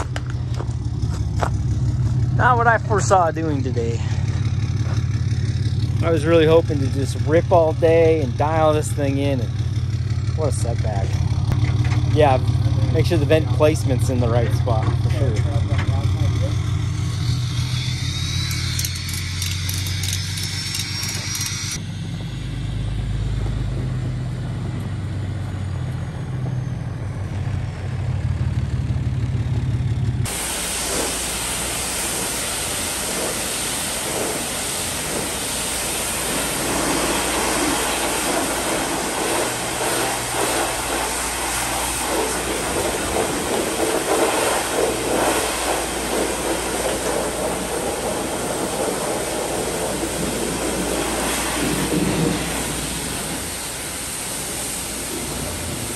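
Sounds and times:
engine idling: 0.0s - 55.9s
pressure washer water jet hissing: 15.6s - 21.8s, 30.3s - 55.9s.

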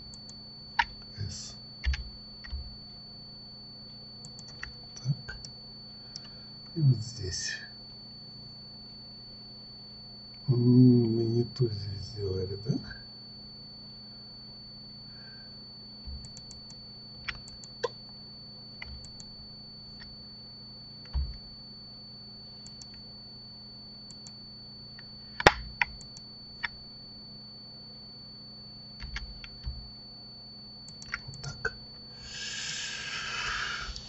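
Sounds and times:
faint hum with high whine: 0.0s - 34.0s
keyboard keystrokes: 29.0s - 29.8s, 30.9s - 31.5s.

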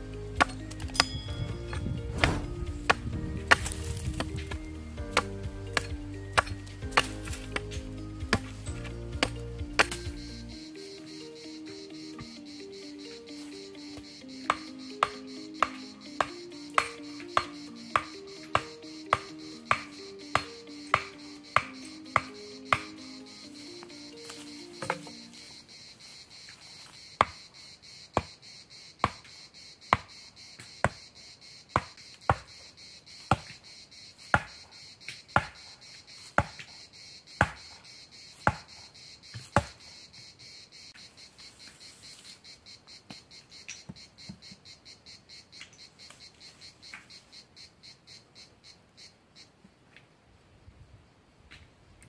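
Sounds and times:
insects droning: 0.0s - 52.0s
axe knocking wooden stake: 0.4s - 8.6s, 9.2s - 10.3s, 14.5s - 22.9s, 24.2s - 25.2s, 34.4s - 34.6s, 35.4s - 35.6s, 36.4s - 36.7s, 37.4s - 37.7s, 38.5s - 38.7s, 39.4s - 39.8s.

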